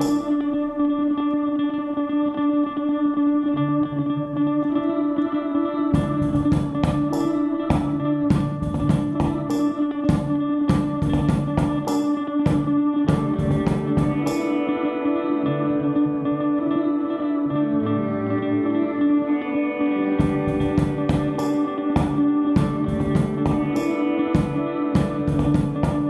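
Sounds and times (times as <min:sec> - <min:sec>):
sustained electric guitar tones: 0:00.0 - 0:26.0
drum beat: 0:06.0 - 0:14.5, 0:20.2 - 0:26.0.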